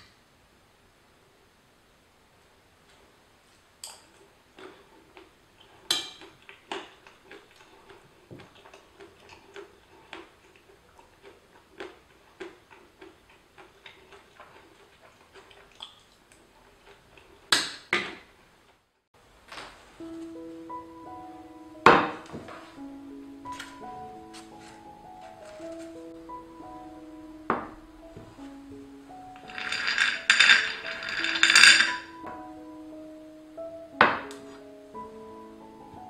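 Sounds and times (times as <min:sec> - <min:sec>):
metal spoon clinking on ceramic plate: 0:29.4 - 0:32.2.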